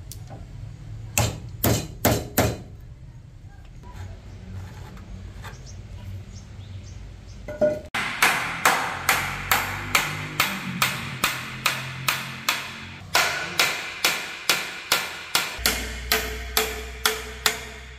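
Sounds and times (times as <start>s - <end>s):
hammer driving nails into wood: 8.0s - 17.8s.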